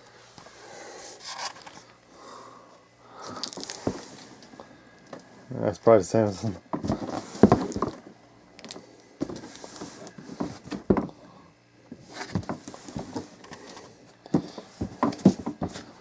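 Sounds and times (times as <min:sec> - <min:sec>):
handling knocks and scuffs: 0:06.7 - 0:08.0, 0:14.3 - 0:15.9.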